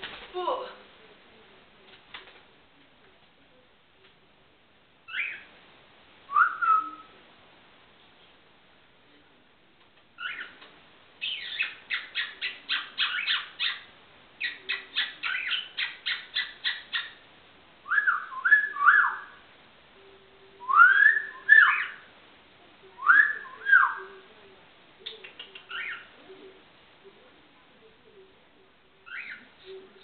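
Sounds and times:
cockatiel chirping: 5.1 - 5.5, 10.2 - 10.5, 11.2 - 17.2, 25.2 - 26.1, 29.1 - 29.4.

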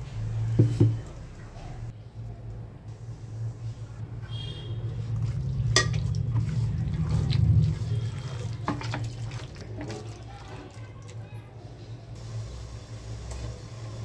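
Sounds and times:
wet squelching and slapping: 4.9 - 10.2.

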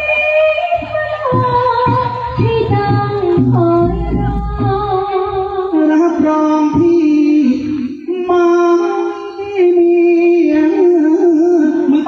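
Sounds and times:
man singing into a microphone: 5.7 - 12.0.

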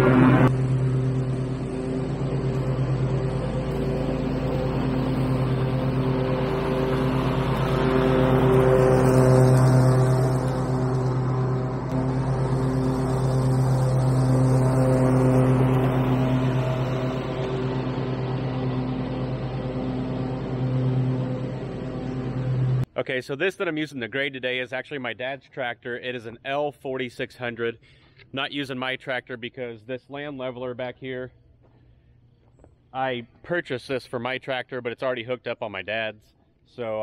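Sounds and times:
riding lawn mower engine: 0.0 - 22.9.

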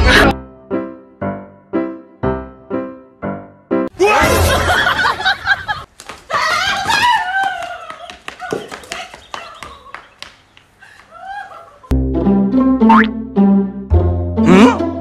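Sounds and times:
music: 0.0 - 3.9, 11.9 - 15.0.

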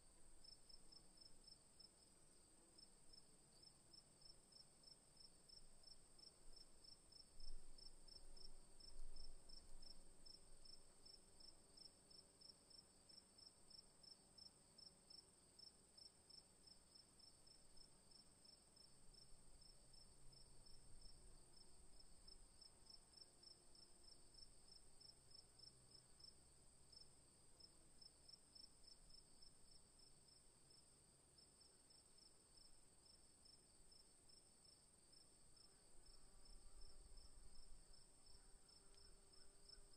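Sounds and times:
crickets chirping: 15.6 - 39.9.

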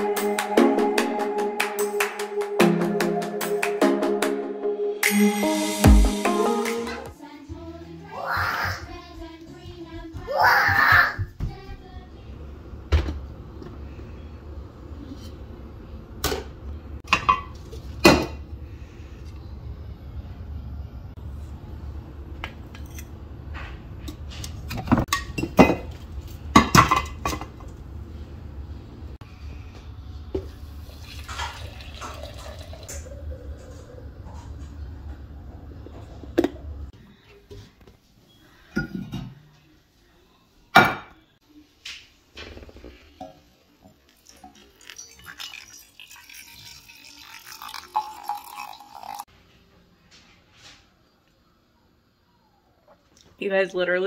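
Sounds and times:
coffee pouring into metal mug: 30.4 - 34.8, 44.0 - 49.3.

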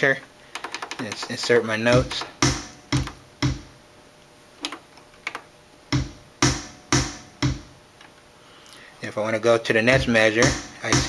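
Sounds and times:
drum machine kick drum: 1.8 - 3.8, 5.9 - 7.8, 10.0 - 11.0.

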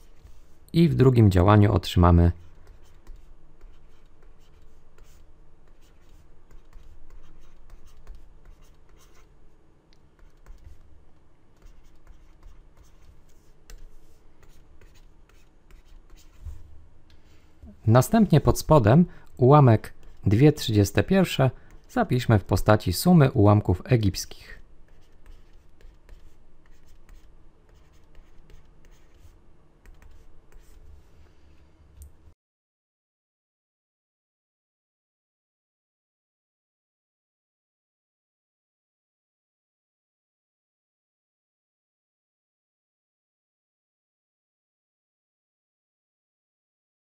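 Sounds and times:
stylus scratching on tablet: 0.0 - 16.6, 19.6 - 22.9, 24.5 - 31.3.

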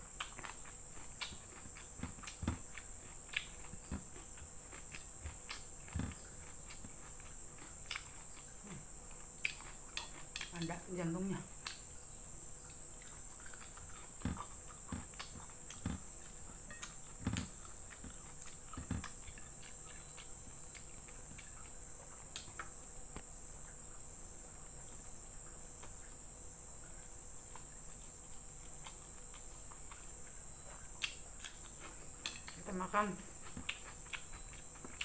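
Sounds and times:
wet chewing and lip-smacking: 0.1 - 10.8, 12.6 - 22.8, 27.5 - 32.6, 33.4 - 35.0.

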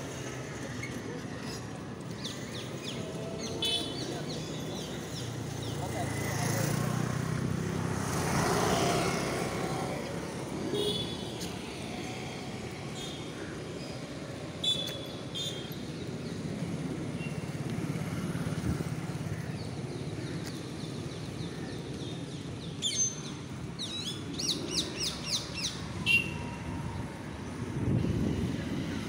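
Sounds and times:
distant road traffic rumble: 0.0 - 29.0.

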